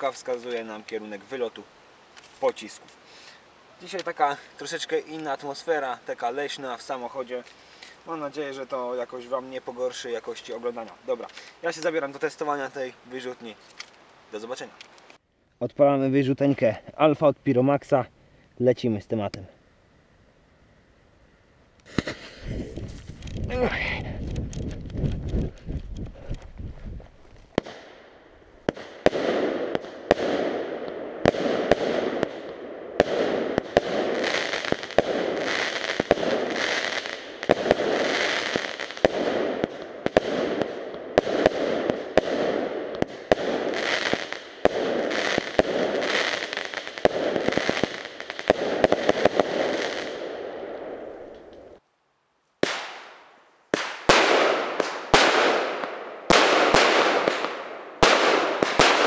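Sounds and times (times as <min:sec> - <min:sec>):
fireworks crackling hiss: 0:00.0 - 0:15.2, 0:21.8 - 0:51.8
fireworks launch and burst bangs: 0:27.5 - 0:28.0, 0:28.6 - 0:51.1, 0:52.6 - 0:53.2, 0:53.8 - 0:59.0.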